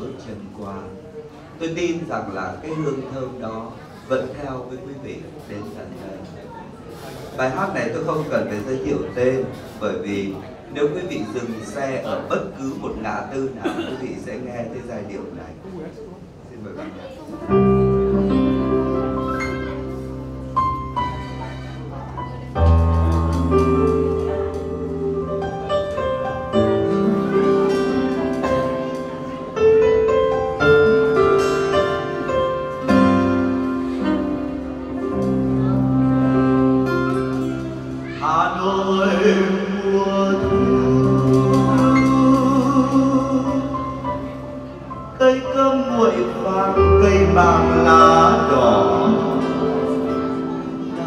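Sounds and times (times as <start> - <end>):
piano ballad chords and melody: 17.4 - 51.0
acoustic guitar: 17.5 - 51.0
man singing: 38.1 - 44.4, 45.1 - 50.0.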